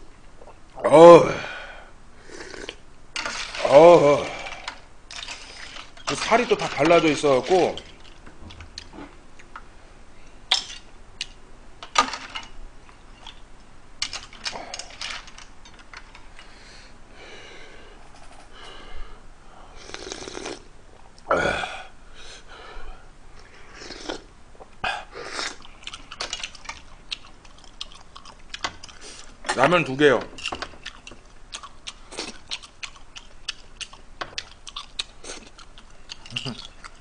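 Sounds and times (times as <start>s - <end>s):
slurping noodles: 2.2s - 7.7s, 19.8s - 20.7s, 23.7s - 24.3s
utensils clicking on bowl: 4.6s - 8.2s
chewing: 23.4s - 29.4s, 30.4s - 37.0s.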